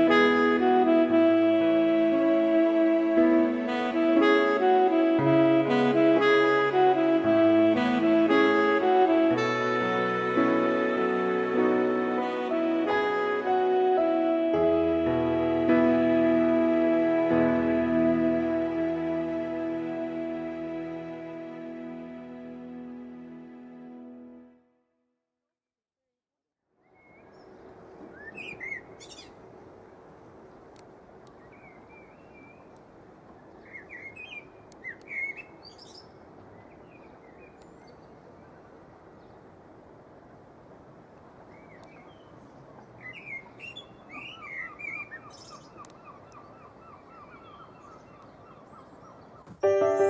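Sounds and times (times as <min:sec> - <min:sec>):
steady outdoor hiss: 0:00.0 - 0:24.5, 0:26.8 - 0:50.0
birds chirping: 0:41.5 - 0:50.0.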